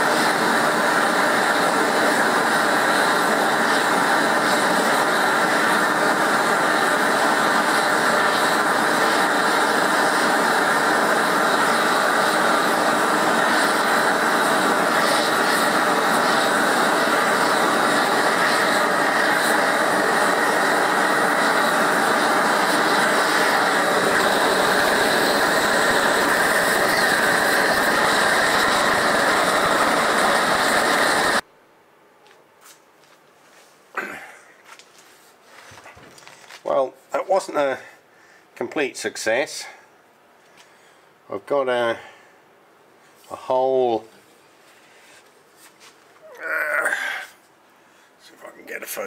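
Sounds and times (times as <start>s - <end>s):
blowtorch roaring: 0.0s - 31.4s, 46.2s - 47.4s.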